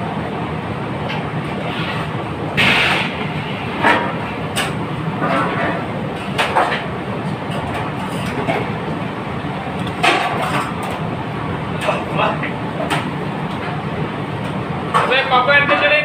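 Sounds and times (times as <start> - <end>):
busy kitchen roar: 0.0 - 16.0.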